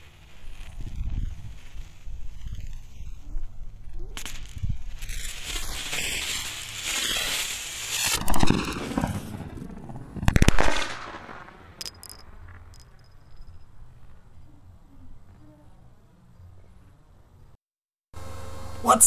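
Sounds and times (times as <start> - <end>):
rocket hissing: 0.0 - 9.4.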